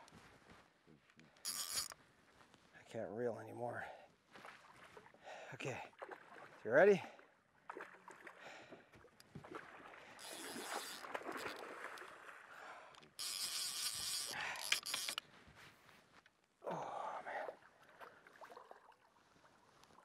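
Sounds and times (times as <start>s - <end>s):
water splashing from thrashing fish: 5.9s - 6.6s, 9.4s - 12.5s.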